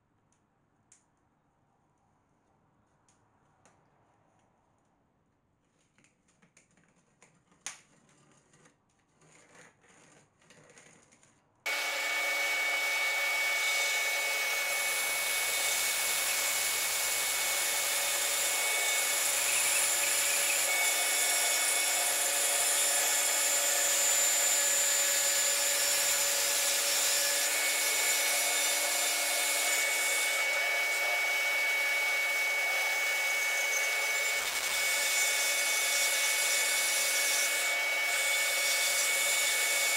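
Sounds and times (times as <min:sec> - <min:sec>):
bandsaw cutting wood: 0:11.7 - 0:39.9.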